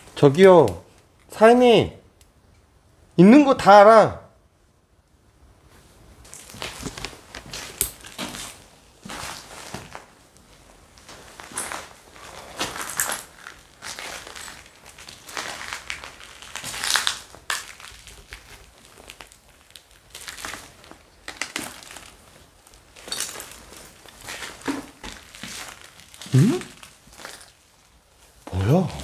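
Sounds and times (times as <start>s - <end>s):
footsteps crunching over debris: 6.3s - 21.1s, 21.7s - 26.2s.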